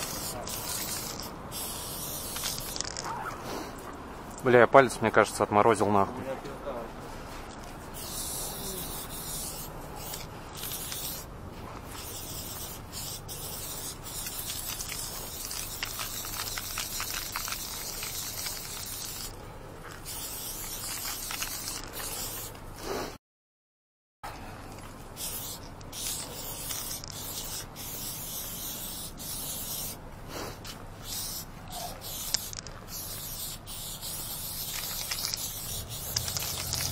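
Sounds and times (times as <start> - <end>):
spray paint can hissing: 0.0 - 3.1, 8.0 - 11.3, 11.9 - 19.4, 20.0 - 22.5, 25.2 - 36.9.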